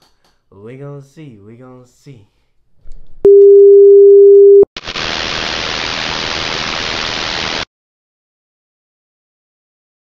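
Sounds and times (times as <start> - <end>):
steady beep tone: 3.3 - 4.7
television static hiss: 4.8 - 7.6.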